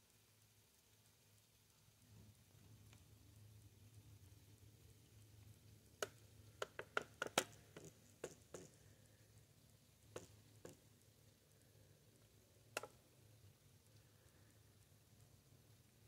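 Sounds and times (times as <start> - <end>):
faint steady low hum: 0.0 - 16.0
sharp ticks and taps: 6.0 - 8.8, 10.1 - 10.9, 12.7 - 13.0.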